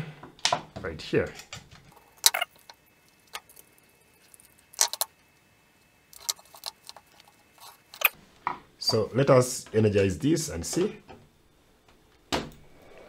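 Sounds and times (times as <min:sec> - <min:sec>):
wires being handled: 0:01.4 - 0:08.2.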